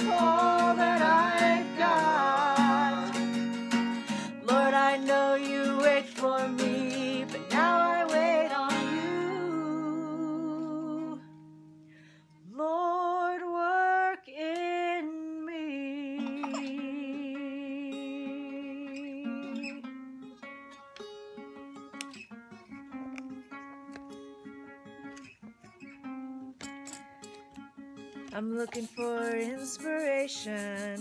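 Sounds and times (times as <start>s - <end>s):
person singing slow melody: 0.0s - 11.4s, 12.3s - 19.9s
acoustic guitar strumming: 0.0s - 12.0s, 16.0s - 31.0s.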